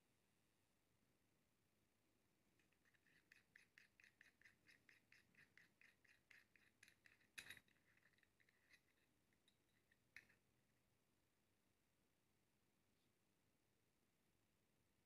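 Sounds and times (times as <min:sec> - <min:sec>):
faint metal thread ticking: 0:02.6 - 0:10.4.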